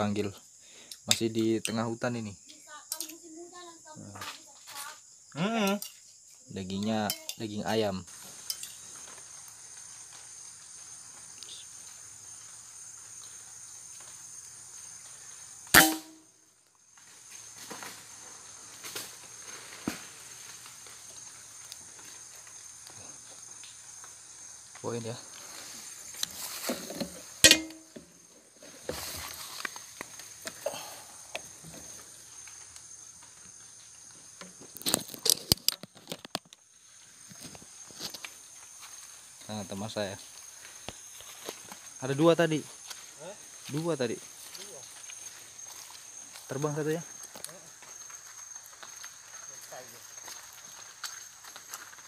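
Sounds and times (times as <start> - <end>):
forest insects droning: 0.0 - 52.0
leaves and twigs crackling: 5.8 - 52.0
air rifle shot: 15.8 - 16.2.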